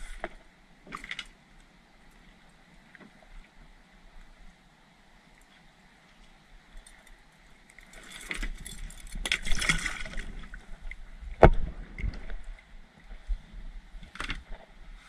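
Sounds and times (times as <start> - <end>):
water splashing: 9.3 - 10.8.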